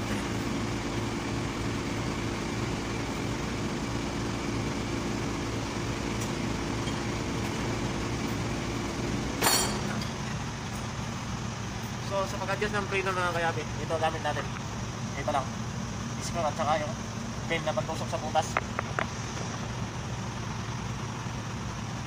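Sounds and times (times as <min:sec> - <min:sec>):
steady mechanical hum: 0:00.0 - 0:22.0
sharp metallic clink: 0:09.4 - 0:10.1.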